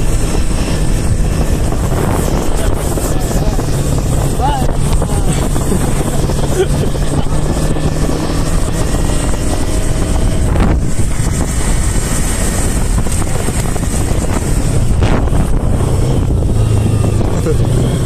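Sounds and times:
motorcycle engine running: 0:00.0 - 0:18.0
wind buffeting microphone: 0:00.0 - 0:18.0.

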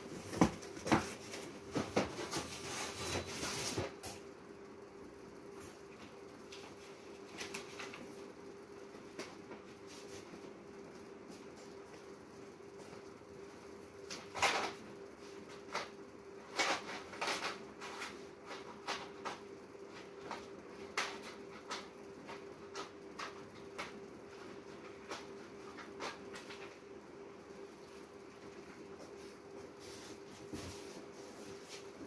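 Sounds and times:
cardboard boxes knocking and rustling: 0:00.2 - 0:02.6.

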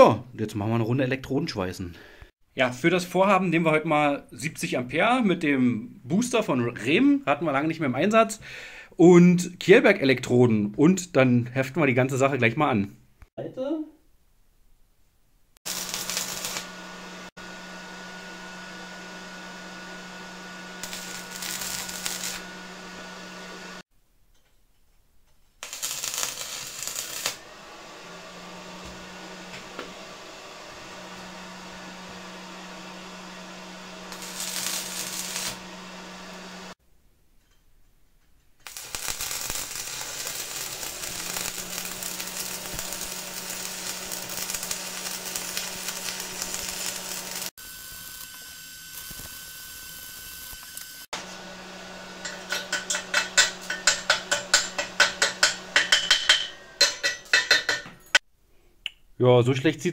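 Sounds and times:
welding arc crackling and hissing: 0:15.6 - 0:23.8, 0:25.6 - 0:36.8, 0:38.6 - 0:58.2.

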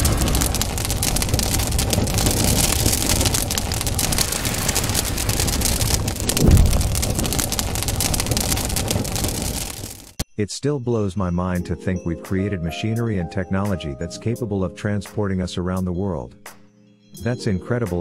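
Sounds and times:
fire crackling: 0:00.0 - 0:10.2
low rumble: 0:00.0 - 0:10.2.

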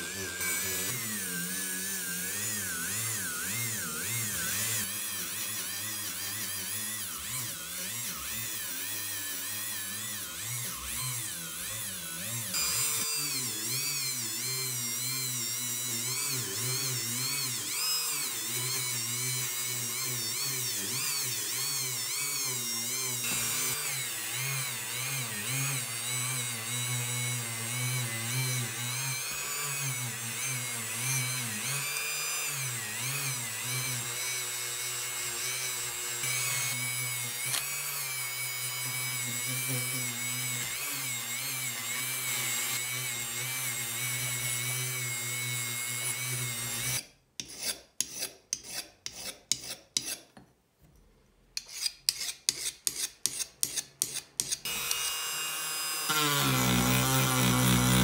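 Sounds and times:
rotary tool motor whine: 0:00.0 - 0:47.0, 0:54.6 - 0:58.0
hand file scraping metal: 0:45.9 - 0:50.3, 0:51.6 - 0:55.2.

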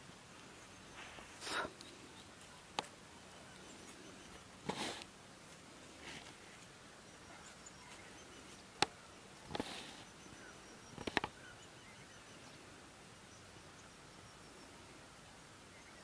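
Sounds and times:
faint bird chirps: 0:06.4 - 0:16.0.

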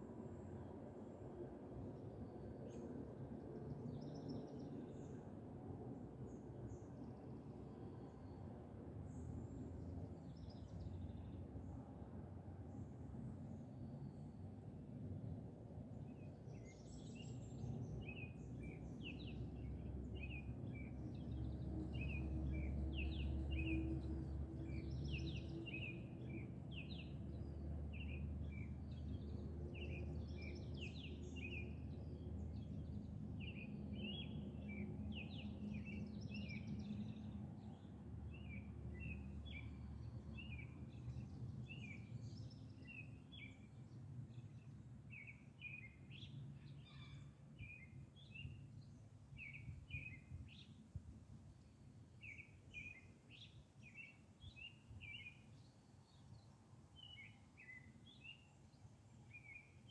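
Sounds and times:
small birds chirping: 0:16.1 - 0:50.8, 0:52.2 - 0:59.9.

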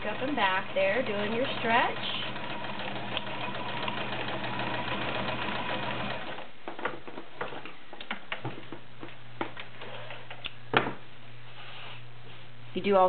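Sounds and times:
sewing machine running: 0:00.0 - 0:06.5.

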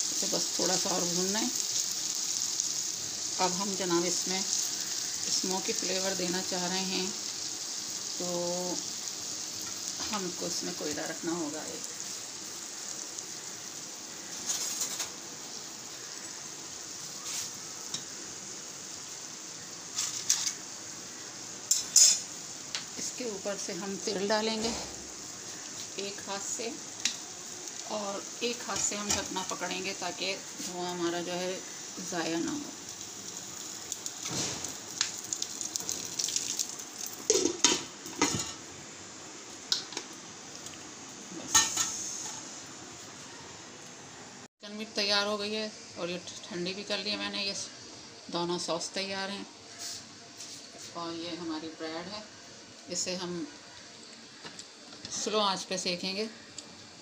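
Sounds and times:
chicken sizzling in a wok: 0:00.0 - 0:57.0
metal tongs setting coal: 0:21.7 - 0:22.2.

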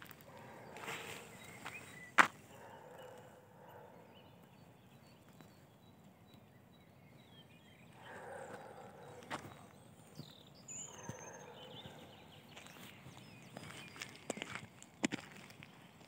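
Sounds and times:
footsteps on a dirt path: 0:00.0 - 0:02.6, 0:07.9 - 0:16.0.

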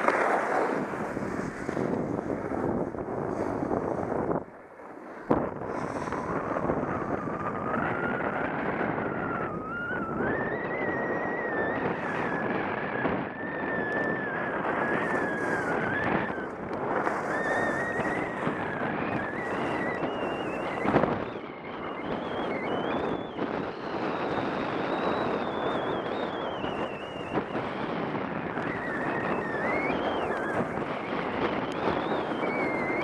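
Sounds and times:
snowboard scraping packed snow: 0:00.0 - 0:06.7, 0:14.6 - 0:21.2
thin wavering whine: 0:00.0 - 0:33.0
wind on microphone: 0:00.0 - 0:33.0.

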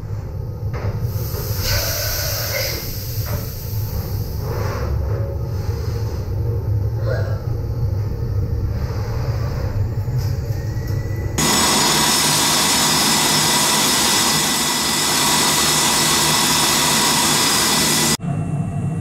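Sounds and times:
tool cutting steel hiss: 0:01.3 - 0:04.3, 0:11.4 - 0:18.2
machine tool head rumbling: 0:11.4 - 0:18.2.

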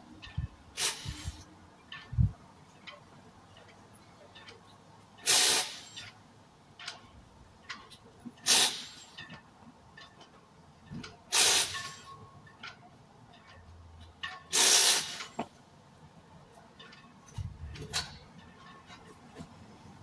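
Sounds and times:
compressed air hissing: 0:00.7 - 0:01.5, 0:05.2 - 0:06.0, 0:08.4 - 0:09.2, 0:11.3 - 0:12.1, 0:14.5 - 0:15.4.

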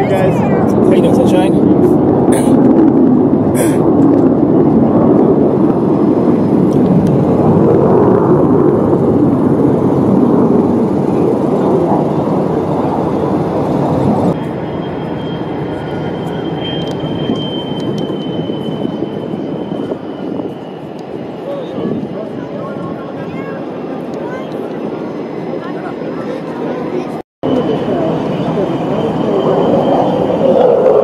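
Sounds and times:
loud steady rumbling: 0:00.0 - 0:31.0
faint high whine: 0:14.4 - 0:23.3, 0:27.4 - 0:31.0.

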